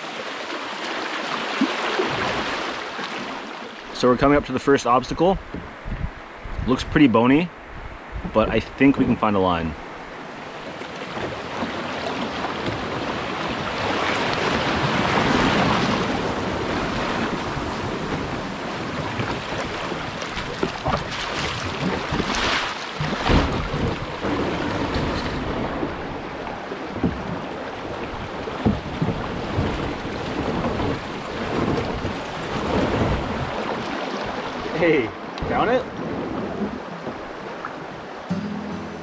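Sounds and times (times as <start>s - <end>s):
water rushing over rocks: 0.0s - 5.9s, 8.3s - 38.2s
wind on microphone: 5.0s - 34.7s.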